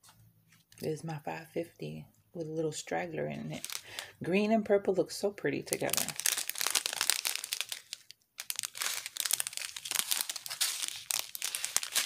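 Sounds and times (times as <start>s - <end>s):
plastic bags crinkling: 3.5s - 4.2s, 5.7s - 12.0s.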